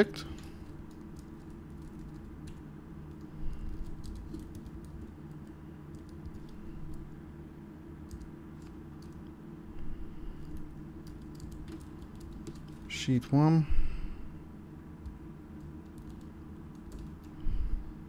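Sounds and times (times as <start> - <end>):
keyboard typing clicks: 3.9 - 7.0, 8.1 - 9.2, 10.5 - 12.8, 15.0 - 17.4.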